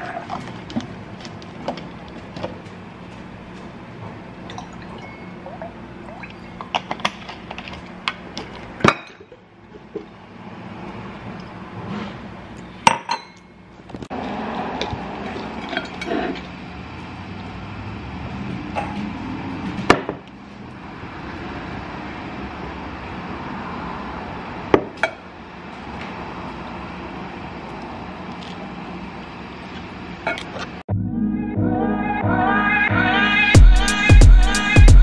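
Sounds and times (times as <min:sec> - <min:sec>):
glass clinking on countertop: 0:12.9 - 0:13.5.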